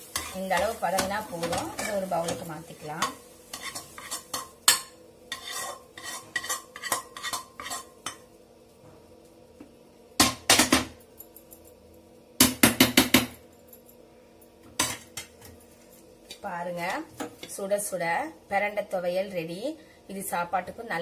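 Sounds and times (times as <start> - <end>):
metal spatula scraping a pan: 0.0 - 8.2.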